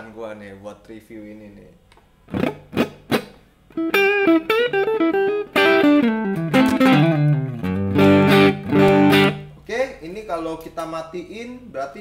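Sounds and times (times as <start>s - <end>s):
electric guitar melody with bends: 2.3s - 9.6s
guitar strums: 2.3s - 9.7s.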